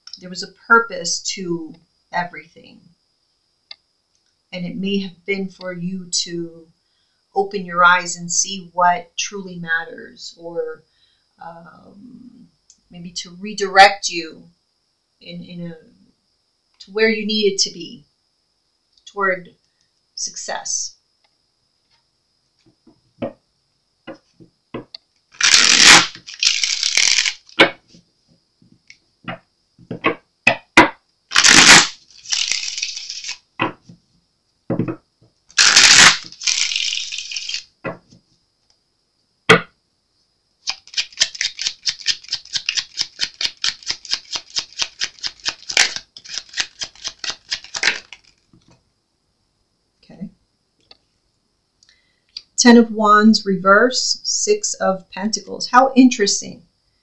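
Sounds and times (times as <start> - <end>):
cards being shuffled: 25.3 - 27.8, 31.3 - 33.8, 35.6 - 37.7, 40.7 - 48.6
rapid card clicks: 25.4 - 27.8, 35.6 - 37.6, 40.7 - 48.5.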